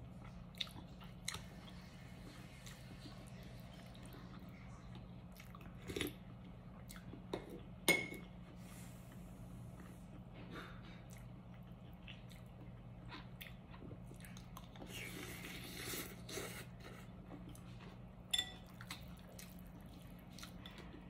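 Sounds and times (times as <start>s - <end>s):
steady low hum: 0.0s - 21.0s
person chewing: 0.2s - 7.6s, 9.1s - 18.0s, 18.6s - 21.0s
slurping broth: 14.8s - 17.1s
ceramic spoon clinking on bowl: 18.3s - 18.6s.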